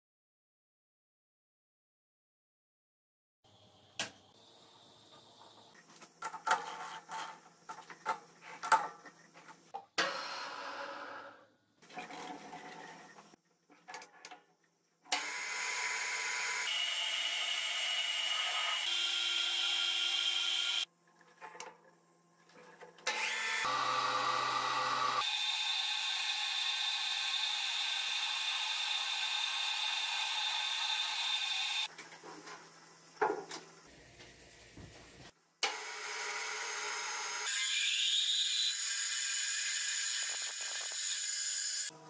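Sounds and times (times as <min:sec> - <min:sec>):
metal lathe cutting: 0:15.2 - 0:20.8, 0:23.1 - 0:31.9.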